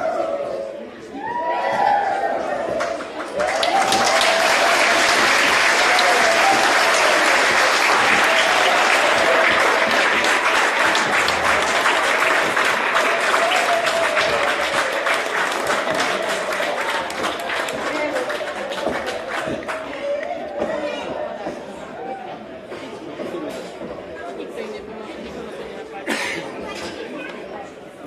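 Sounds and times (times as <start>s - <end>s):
audience applauding: 2.8s - 20.6s.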